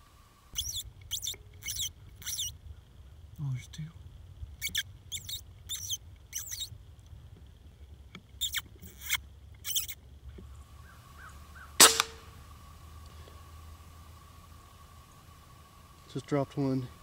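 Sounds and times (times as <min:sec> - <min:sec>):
air rifle shot crack: 0:11.8 - 0:12.4.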